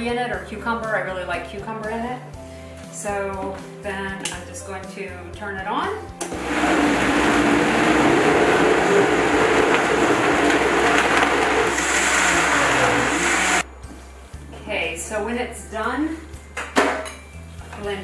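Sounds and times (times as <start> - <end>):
blender running at high speed: 6.3 - 13.6.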